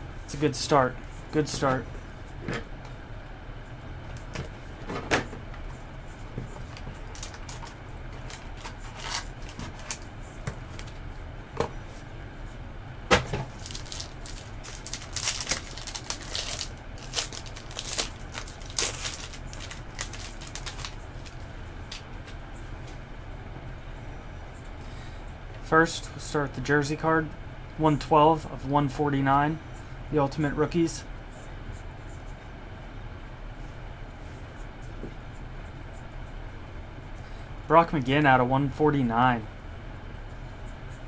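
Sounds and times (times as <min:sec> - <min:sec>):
crinkling plastic and foil wrapping: 0:06.6 - 0:11.0, 0:13.4 - 0:22.0.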